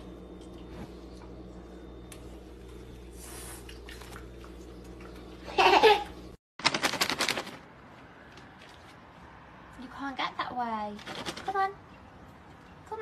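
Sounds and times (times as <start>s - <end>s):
rapid sharp clicks or rattles: 6.6s - 7.7s, 11.0s - 11.7s.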